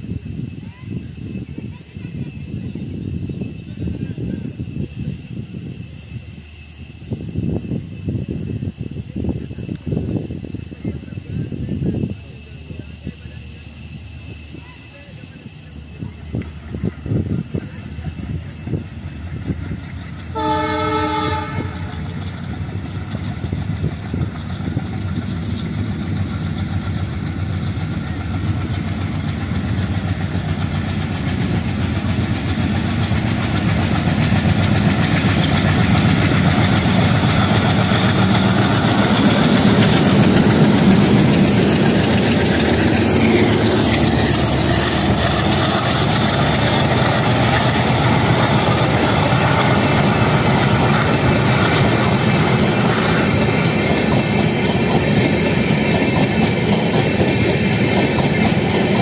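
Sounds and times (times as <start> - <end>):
train horn blast: 20.3 - 22.1.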